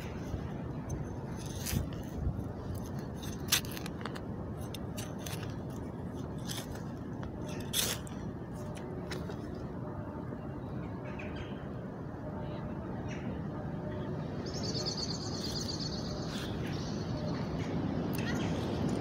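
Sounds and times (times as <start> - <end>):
low background rumble: 0.0 - 19.0
weeding tool scraping soil: 1.3 - 8.2.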